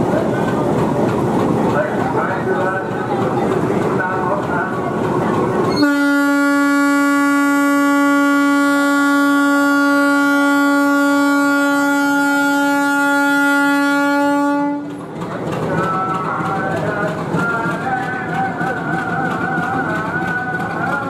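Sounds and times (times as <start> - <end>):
locomotive air horn blast: 5.7 - 14.9.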